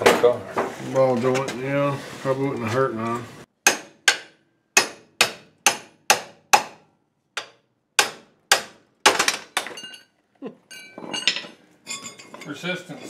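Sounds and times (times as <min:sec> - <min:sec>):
ringing metal clinks: 0:10.7 - 0:12.6.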